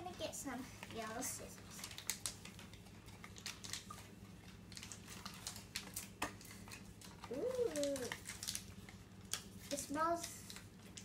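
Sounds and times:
child humming: 7.3 - 8.2.

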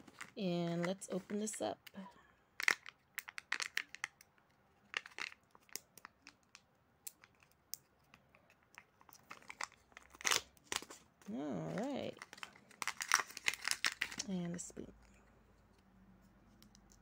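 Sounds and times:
foil seal crinkling and crackling: 4.9 - 7.5, 8.8 - 14.4.

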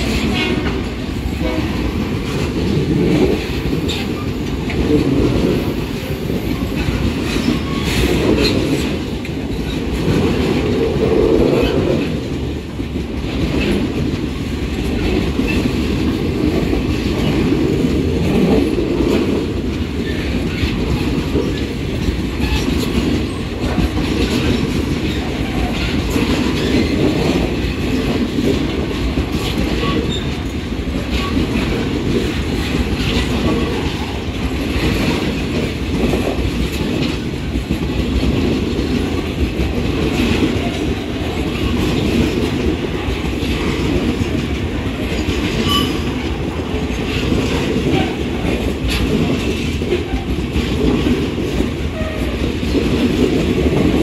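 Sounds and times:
clickety-clack of rail joints: 0.0 - 54.0
train wheels rumbling on rail: 0.0 - 54.0
train wheels squealing: 6.4 - 8.6, 29.8 - 30.4, 45.5 - 46.2.

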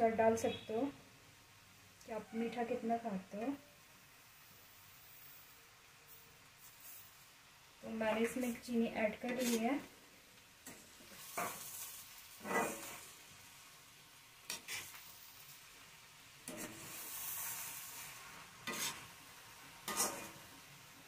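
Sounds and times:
carrots sizzling in ghee: 0.0 - 21.0
spatula scraping a wok: 5.0 - 7.3, 8.0 - 9.8, 10.6 - 13.2, 14.4 - 15.8, 16.4 - 20.7.

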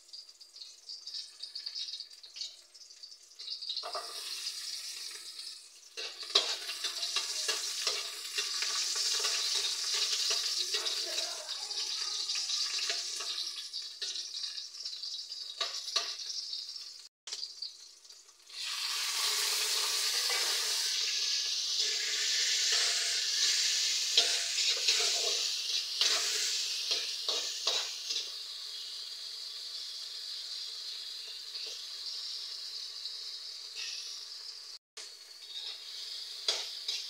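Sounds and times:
food sizzling in hot oil: 0.0 - 37.0
spatula scraping a wok: 3.8 - 11.2, 19.0 - 28.4, 33.4 - 34.6, 35.2 - 37.0.

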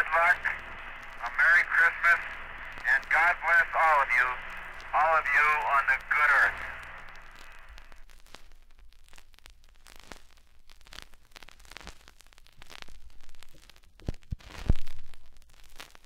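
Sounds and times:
vinyl pops: 0.0 - 16.0
vinyl surface crackle: 0.0 - 16.0.

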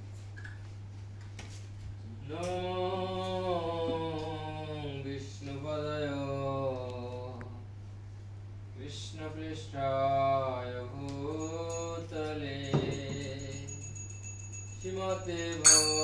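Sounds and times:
steady low hum: 0.0 - 16.0
man singing chant: 2.0 - 7.7, 8.8 - 13.8, 14.8 - 16.0.

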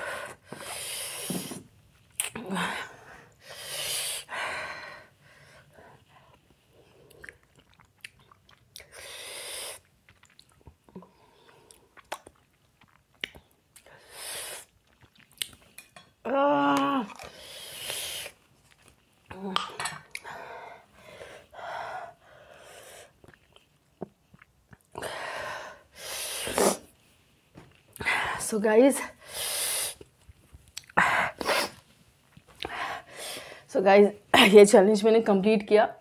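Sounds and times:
hissing breaths: 0.0 - 1.7, 8.9 - 9.8, 17.3 - 18.4, 29.2 - 30.0
person chewing: 7.0 - 9.0, 9.8 - 13.9, 14.6 - 15.9, 23.2 - 25.0.

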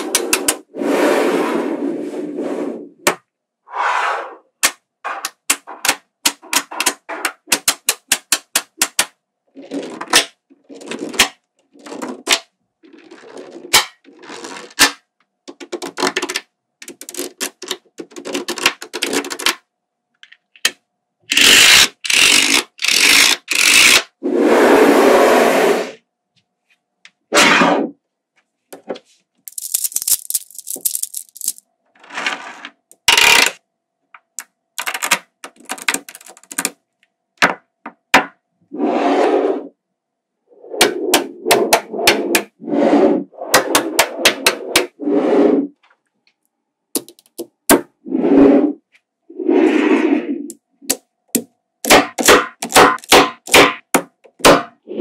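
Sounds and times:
magnetic balls clicking together: 4.6 - 9.1, 15.5 - 19.6, 29.5 - 31.6, 32.9 - 33.6, 34.2 - 36.8, 47.0 - 47.8.

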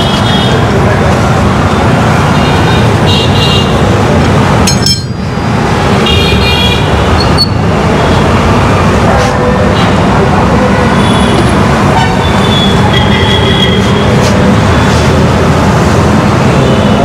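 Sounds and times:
road traffic: 0.0 - 17.0
sharp clink: 4.7 - 5.3.

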